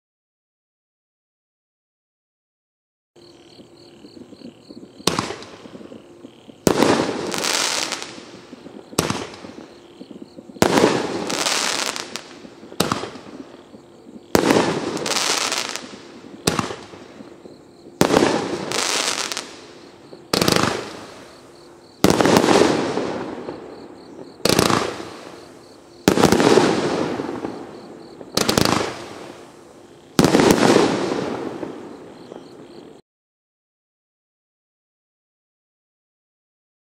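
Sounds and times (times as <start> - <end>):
firework crackling tail: 4.0 - 33.0
firework bangs: 4.2 - 32.8.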